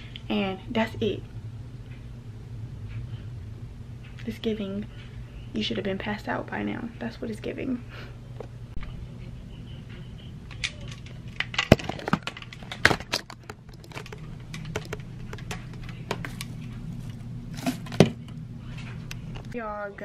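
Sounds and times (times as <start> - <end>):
steady low hum: 0.0 - 20.0
plastic clicks and knocks: 11.6 - 16.4.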